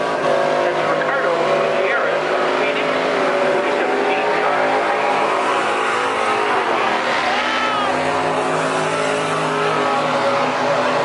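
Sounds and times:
truck engine at high revs: 0:00.0 - 0:11.0
tyres spinning on pavement: 0:03.5 - 0:11.0.

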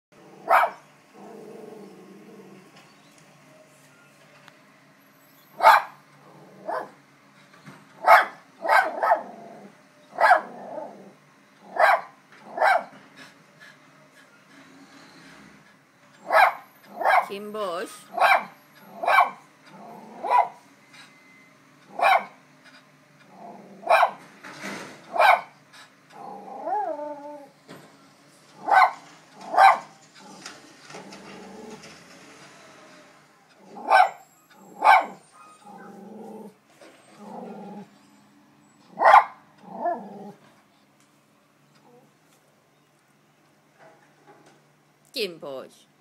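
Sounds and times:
dog grumbling: 0:00.2 - 0:02.7, 0:06.2 - 0:07.0, 0:08.9 - 0:09.8, 0:10.4 - 0:11.8, 0:19.7 - 0:20.4, 0:23.3 - 0:24.0, 0:26.1 - 0:27.5, 0:30.2 - 0:31.8, 0:35.6 - 0:37.9, 0:39.6 - 0:40.4
small dog barking: 0:00.4 - 0:00.9, 0:05.5 - 0:06.0, 0:06.6 - 0:07.0, 0:08.0 - 0:09.4, 0:10.1 - 0:10.9, 0:11.6 - 0:12.9, 0:16.2 - 0:17.3, 0:18.1 - 0:20.6, 0:21.9 - 0:22.4, 0:23.8 - 0:24.2, 0:25.1 - 0:25.6, 0:28.6 - 0:29.9, 0:33.7 - 0:36.5, 0:38.9 - 0:40.0
dog whining: 0:18.1 - 0:21.3, 0:26.1 - 0:27.6, 0:33.6 - 0:40.4.

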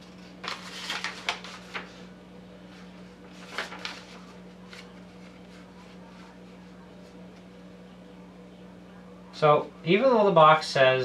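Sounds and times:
paper crinkling: 0:00.0 - 0:07.5
steady low hum: 0:00.0 - 0:11.0.

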